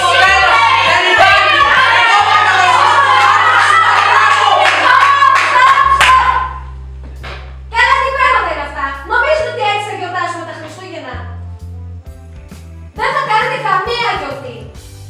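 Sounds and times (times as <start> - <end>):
young voices singing together: 0.0 - 6.6
hand claps: 3.6 - 6.3.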